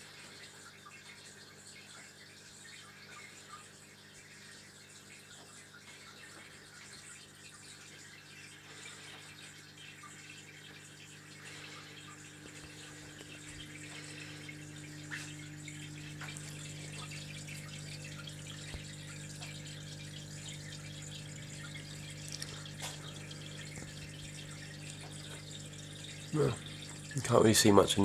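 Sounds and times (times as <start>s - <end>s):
pump motor hum: 0.0s - 28.0s
water drips: 0.0s - 28.0s
water splashing and trickling: 0.0s - 28.0s.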